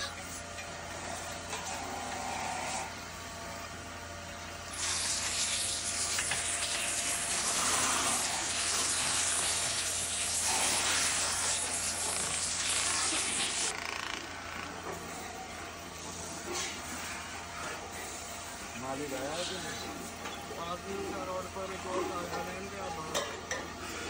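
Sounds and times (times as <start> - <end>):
low machine hum: 0.0 - 24.0.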